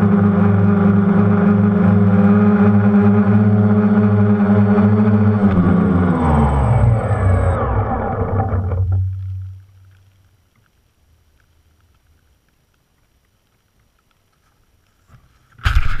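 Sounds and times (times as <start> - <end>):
drone motors winding down: 0.0 - 9.6
faint ticks: 9.1 - 15.6.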